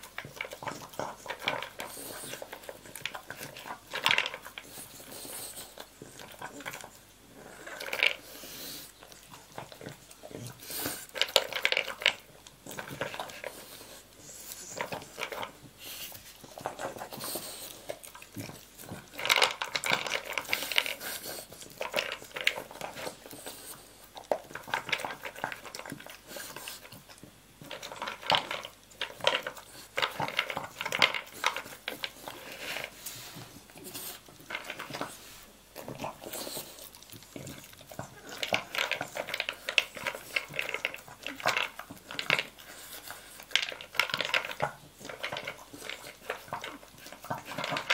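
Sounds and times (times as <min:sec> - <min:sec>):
dog crunching kibble: 0:00.0 - 0:47.9
kibble clattering in bowl: 0:43.5 - 0:47.9.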